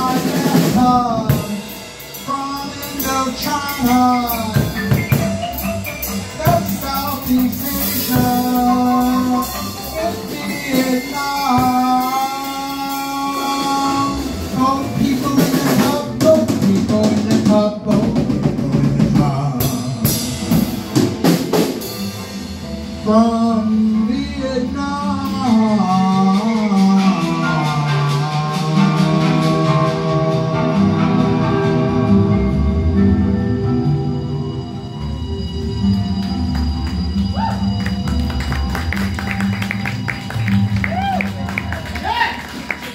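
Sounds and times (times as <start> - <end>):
person singing into microphone: 0.0 - 5.0, 6.3 - 20.3, 23.0 - 32.2
drum kit: 0.0 - 42.9.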